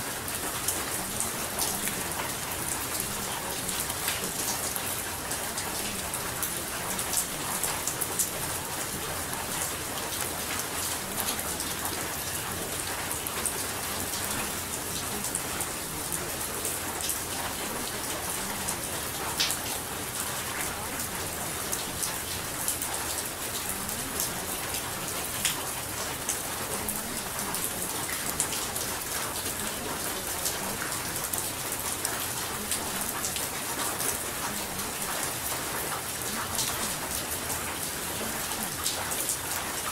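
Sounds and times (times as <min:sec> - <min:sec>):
steady rain: 0:00.0 - 0:39.9.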